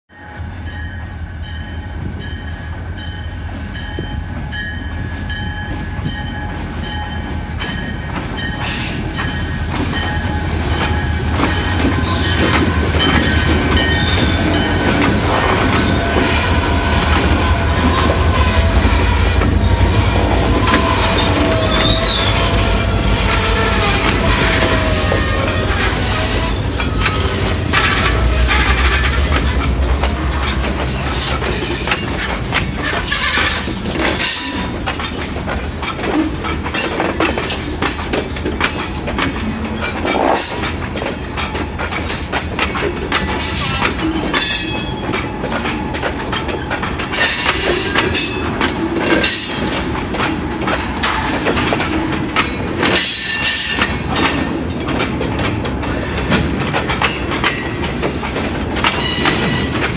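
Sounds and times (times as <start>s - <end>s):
train wheels squealing: 0.1s - 35.3s, 42.8s - 50.0s, 52.9s - 54.9s, 58.8s - 59.9s
diesel locomotive rumble: 1.9s - 59.9s.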